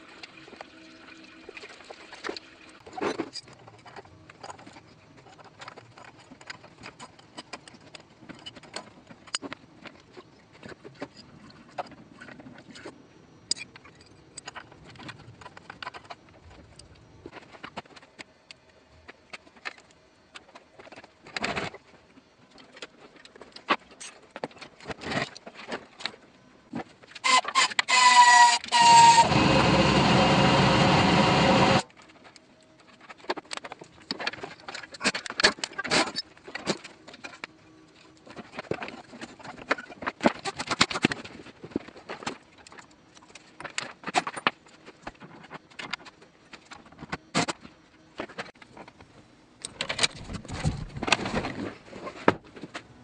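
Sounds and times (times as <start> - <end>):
loud power tool whine: 27.3 - 31.9.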